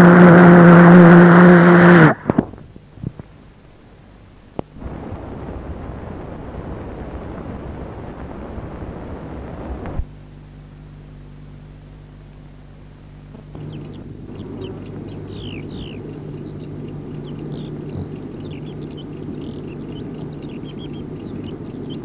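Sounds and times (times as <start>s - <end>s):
low steady hum: 0.0s - 22.0s
loud rushing noise: 4.8s - 10.0s.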